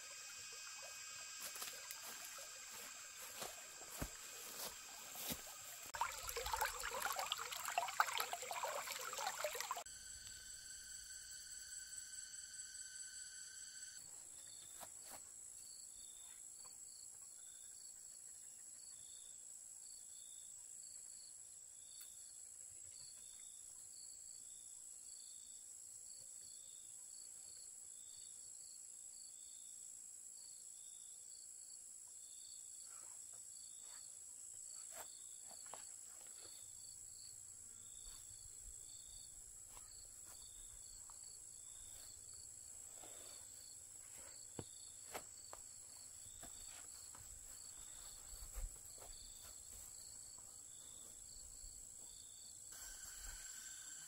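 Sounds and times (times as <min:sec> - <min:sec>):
high-pitched insect drone: 0:00.0 - 0:05.9, 0:09.8 - 0:14.6, 0:52.7 - 0:54.0
short insect chirps: 0:00.0 - 0:06.0, 0:09.2 - 0:14.8.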